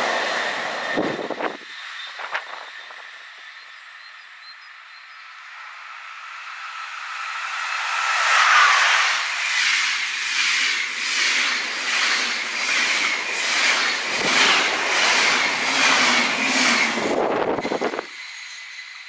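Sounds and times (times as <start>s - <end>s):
electric locomotive whine: 0.0s - 19.0s
train coaches rushing past: 5.4s - 19.0s.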